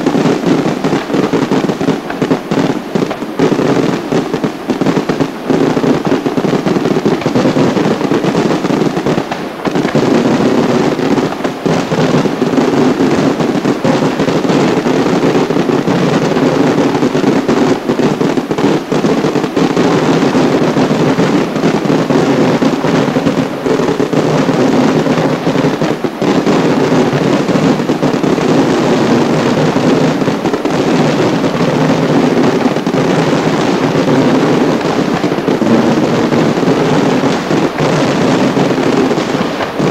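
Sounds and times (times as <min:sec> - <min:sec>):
fireworks bangs and crackles: 0:00.0 - 0:39.9.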